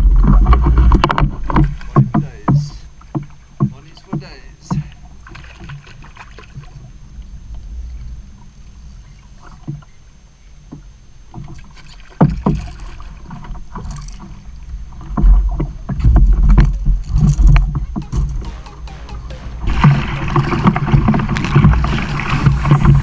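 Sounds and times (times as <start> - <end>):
water lapping against kayak hull: 0.0 - 18.6, 19.3 - 23.0
splashing water: 11.4 - 23.0
heavy low buffeting: 17.6 - 23.0
low wind rumble: 19.3 - 23.0.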